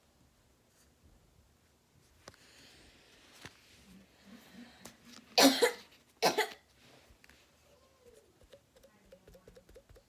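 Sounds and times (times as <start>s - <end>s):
person coughing: 5.4s - 6.6s.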